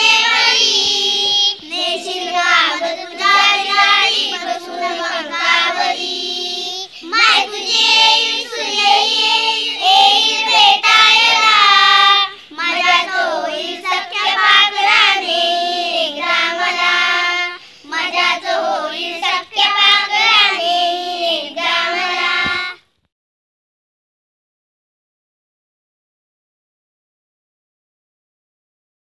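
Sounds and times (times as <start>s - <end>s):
children singing together: 0.0s - 22.8s.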